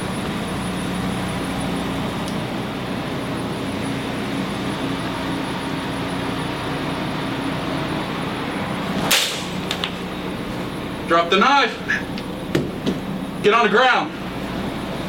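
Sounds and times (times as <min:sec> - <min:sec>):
machinery droning hum: 0:00.0 - 0:15.0
sharp crack: 0:09.0 - 0:10.0.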